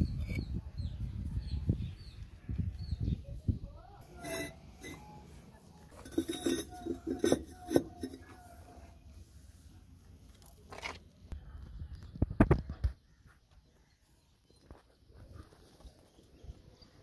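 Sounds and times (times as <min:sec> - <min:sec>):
bricks clinking and knocking: 0:04.2 - 0:05.0, 0:05.9 - 0:08.4.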